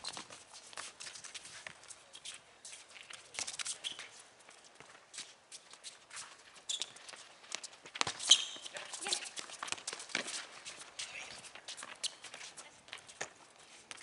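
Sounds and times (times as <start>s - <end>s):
soccer ball kicks: 7.5s - 10.4s.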